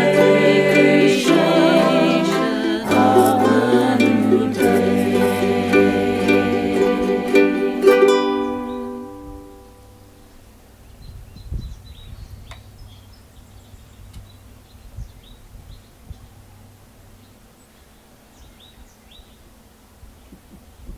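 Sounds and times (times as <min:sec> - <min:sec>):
ukulele strummed chord ringing: 0:00.0 - 0:10.2
faint bird chirps: 0:08.4 - 0:19.5.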